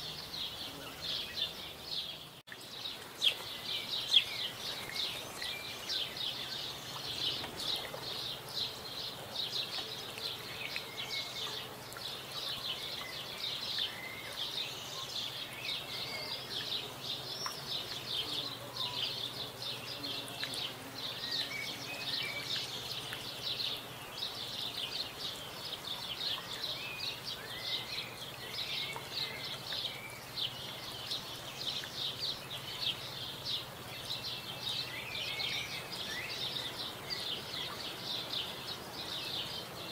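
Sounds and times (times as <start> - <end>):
faint bird chirps: 9.6 - 39.9.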